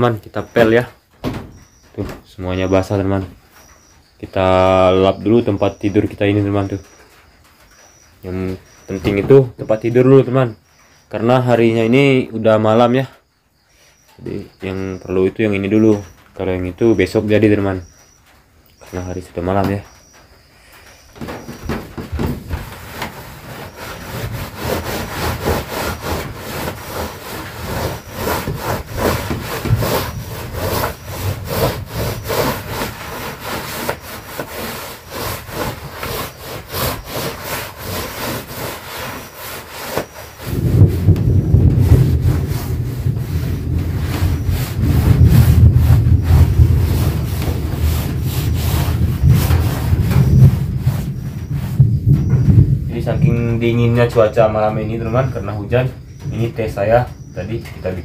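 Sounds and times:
cloth wiping wet floorboards: 21.2 - 51.9
heavy low rumble: 40.6 - 56.6.

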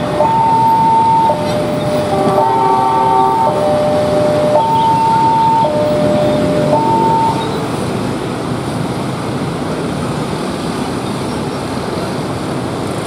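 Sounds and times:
two-tone crossing alarm: 0.0 - 7.8
motorcycles and road traffic: 0.0 - 13.0.

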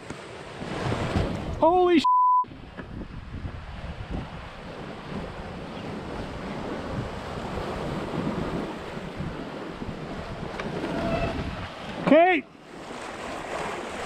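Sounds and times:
seawater rushing along hull: 0.0 - 14.0
wind buffeting microphone: 2.5 - 12.1.

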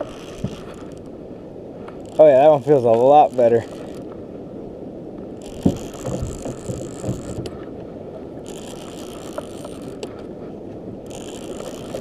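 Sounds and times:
fishing reel gears whirring: 0.0 - 1.1, 2.0 - 4.1, 5.4 - 7.4, 8.4 - 10.1, 11.0 - 12.0.

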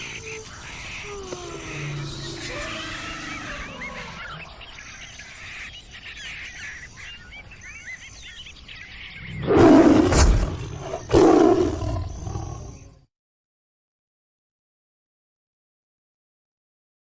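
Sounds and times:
deep animal calls: 0.0 - 4.8, 9.2 - 12.9
faint bird chirping: 0.0 - 13.1.

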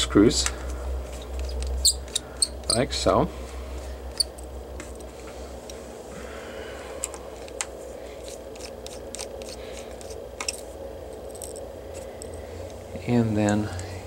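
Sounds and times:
screwdriver clicking and scraping: 1.2 - 2.8, 8.2 - 12.8.

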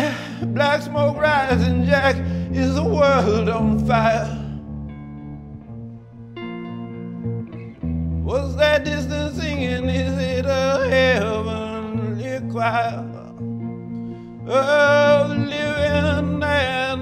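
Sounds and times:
man singing high notes: 0.0 - 4.6, 8.3 - 13.4, 14.5 - 17.0
electric guitar through amplifier: 0.0 - 17.0.

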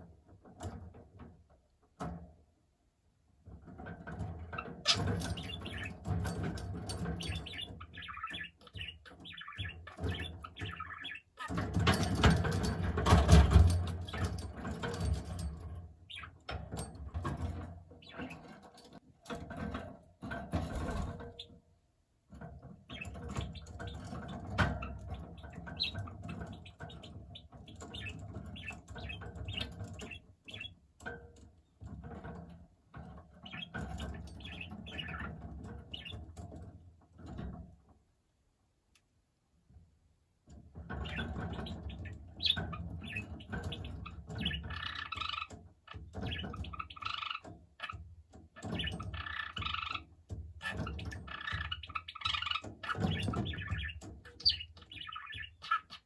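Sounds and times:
budgerigar chattering and warbling: 48.6 - 56.0.

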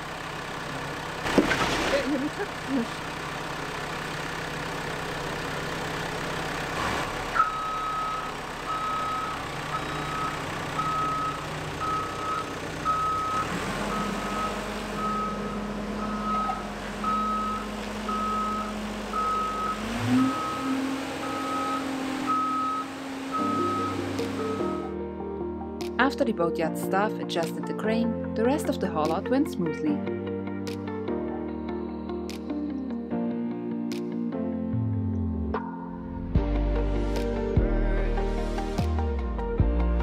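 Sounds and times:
engine humming: 0.0 - 29.8
warning beeper beeping: 7.4 - 24.9.

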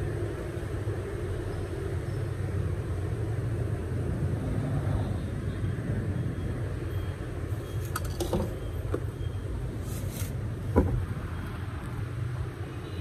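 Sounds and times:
knock: 10.8 - 11.0.

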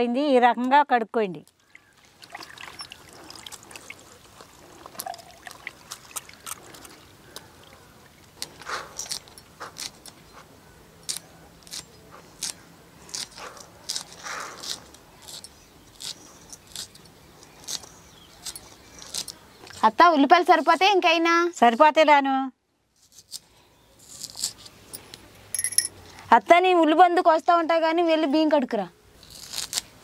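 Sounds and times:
water splashing: 1.6 - 8.4
knife cutting green onions: 11.0 - 15.4, 24.0 - 24.7, 29.2 - 29.9.

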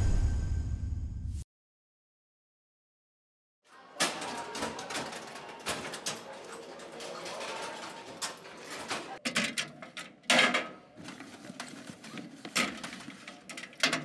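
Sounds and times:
murmur of voices: 3.7 - 9.3
knocks and bangs on metal lockers: 4.0 - 10.8.

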